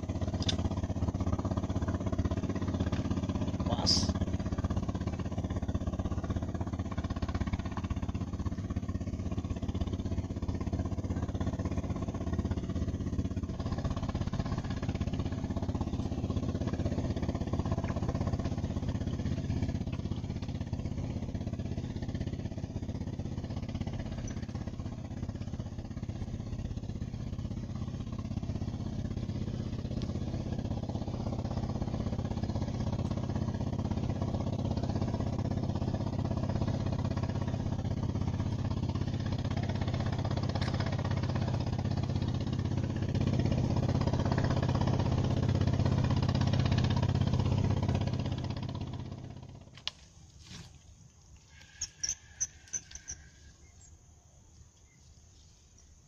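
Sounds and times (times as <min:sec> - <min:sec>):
boat engine droning: 0:00.0 - 0:54.8.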